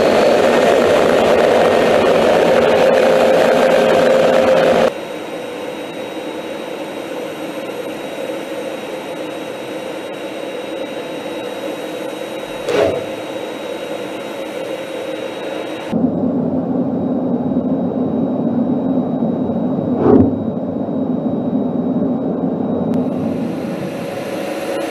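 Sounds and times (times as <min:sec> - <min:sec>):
jet engine and airflow rush: 0:12.2 - 0:24.8.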